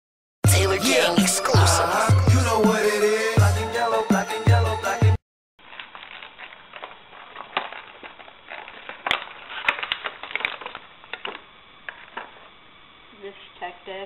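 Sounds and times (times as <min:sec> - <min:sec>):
plastic packaging crinkling: 0:05.6 - 0:12.6.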